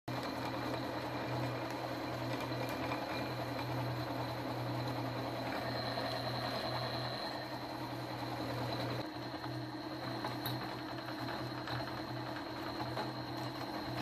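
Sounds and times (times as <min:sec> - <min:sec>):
router spindle hum and whine: 0:00.1 - 0:14.0.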